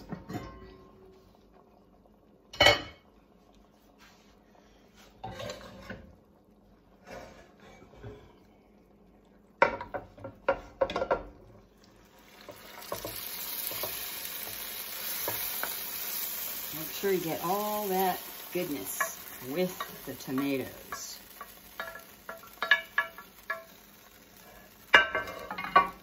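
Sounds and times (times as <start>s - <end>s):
cookware clanking: 0.0s - 0.9s, 18.7s - 23.8s, 24.9s - 26.0s
sizzling hiss: 11.8s - 26.0s.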